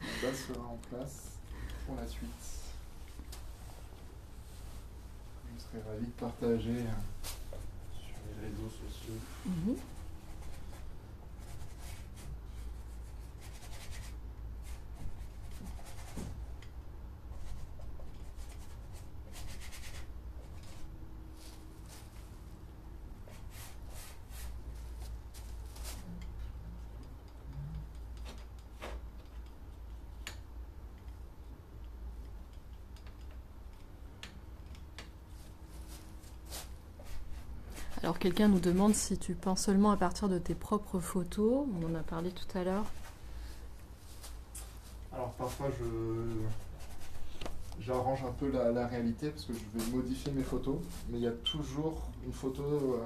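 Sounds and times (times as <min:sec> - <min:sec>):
low steady hum: 0:00.0 - 0:53.0
paintbrush strokes on canvas: 0:23.2 - 0:26.0, 0:41.9 - 0:48.4.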